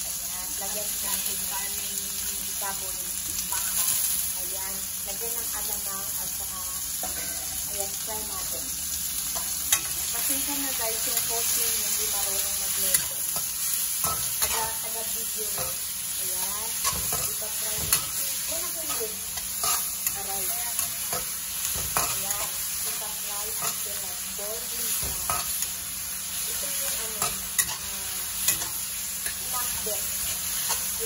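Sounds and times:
vegetables sizzling in oil: 0:00.0 - 0:31.0
metal spatula scraping wok: 0:12.5 - 0:24.0, 0:26.5 - 0:31.0.

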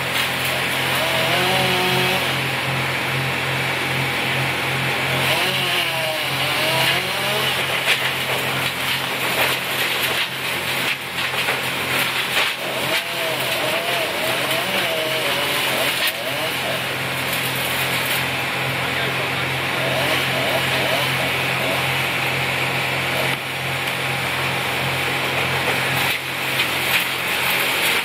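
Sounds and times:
engine running steadily: 0:00.0 - 0:28.0
faint voices talking: 0:18.8 - 0:19.8.

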